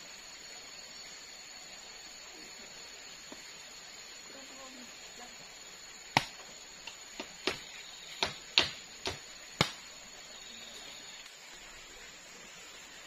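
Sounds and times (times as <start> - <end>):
bamboo knocking on bamboo: 6.1 - 9.9.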